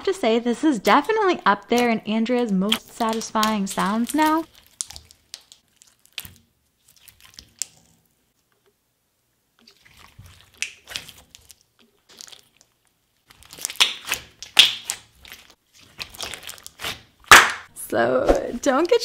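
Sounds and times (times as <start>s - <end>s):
slime squished by hand: 2.7s - 8.0s, 9.6s - 17.7s.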